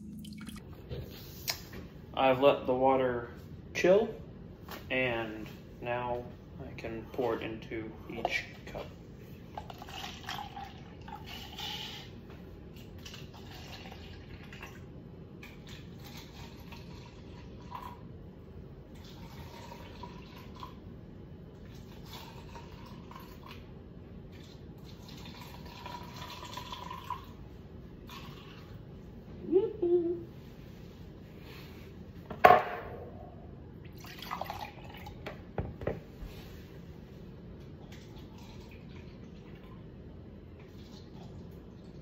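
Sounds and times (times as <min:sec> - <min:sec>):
water pouring into cups: 0:09.5 - 0:12.1, 0:12.8 - 0:14.9, 0:15.5 - 0:18.1, 0:19.0 - 0:20.8, 0:21.6 - 0:23.6, 0:24.3 - 0:27.4, 0:28.0 - 0:28.8, 0:33.9 - 0:35.2, 0:37.9 - 0:39.9.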